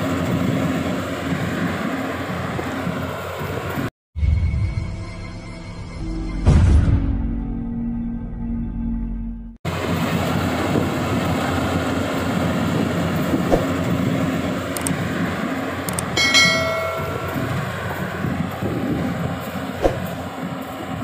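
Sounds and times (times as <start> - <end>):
combine harvester running: 0.0 - 3.9, 9.7 - 21.0.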